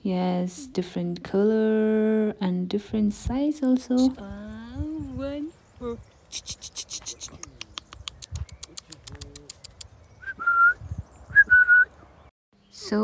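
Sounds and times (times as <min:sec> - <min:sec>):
high clicks: 0:06.3 - 0:09.9
person whistling: 0:10.2 - 0:11.9.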